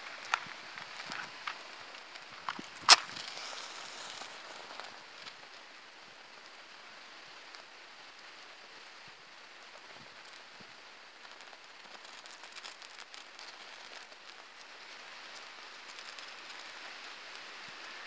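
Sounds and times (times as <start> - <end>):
match flame hiss: 0.0 - 9.0, 9.7 - 18.0
match striking on matchbox: 0.2 - 5.4.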